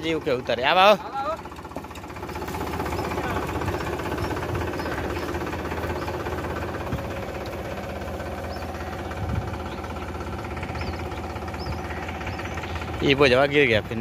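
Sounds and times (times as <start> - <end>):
tractor diesel engine running: 0.0 - 14.0.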